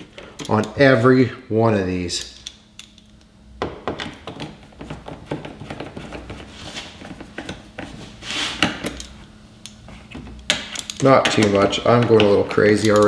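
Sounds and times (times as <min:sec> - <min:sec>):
scraping rustle: 0:07.9 - 0:08.6.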